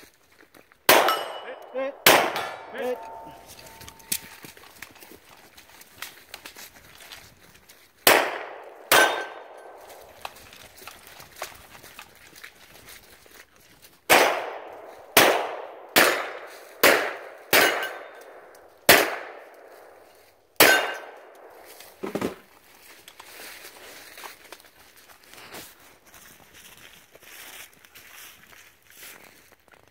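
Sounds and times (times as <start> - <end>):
gunshots with echo: 0.9 - 4.1, 8.0 - 10.1, 14.1 - 20.0, 20.6 - 21.7.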